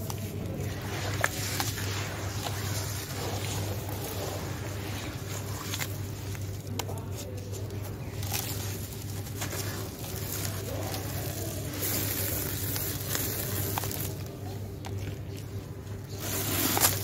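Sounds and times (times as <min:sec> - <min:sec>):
hands crunching dry cement: 0:00.0 - 0:17.0
small cracks: 0:05.0 - 0:17.0.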